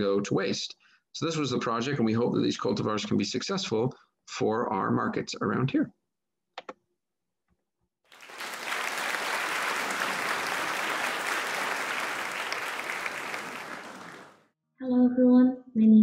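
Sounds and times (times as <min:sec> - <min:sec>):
audience applauding: 0:08.1 - 0:14.4.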